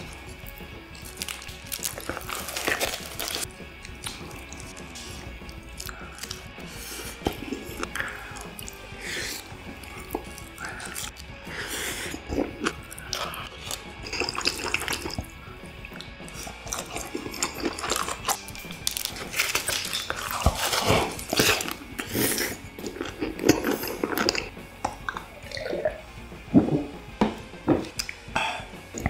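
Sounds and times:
slurping and chewing: 0.0s - 27.0s.

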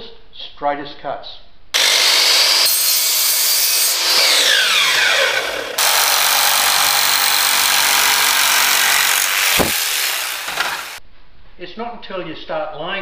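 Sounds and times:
drop saw motor winding down: 1.8s - 11.0s
jigsaw cutting laminate: 1.8s - 11.0s.

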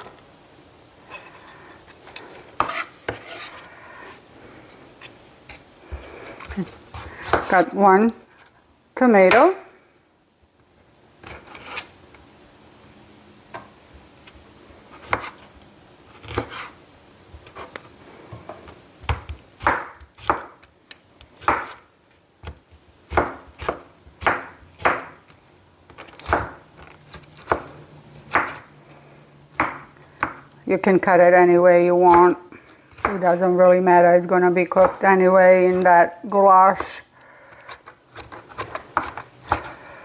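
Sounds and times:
knife cutting tomato on board: 6.4s - 7.7s, 14.9s - 15.4s, 16.1s - 16.8s, 19.1s - 20.7s, 21.3s - 21.8s, 22.4s - 25.2s, 25.9s - 27.7s, 28.3s - 28.7s.

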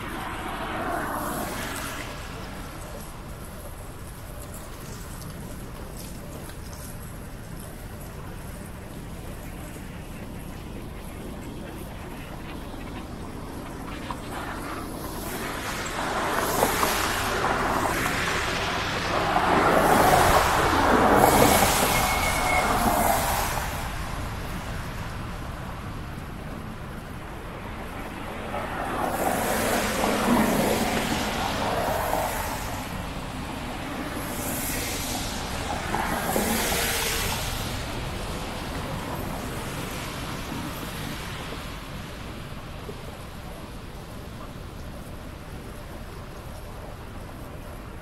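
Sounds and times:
tyres hissing on wet street: 0.0s - 48.0s
vehicles passing: 0.0s - 48.0s.

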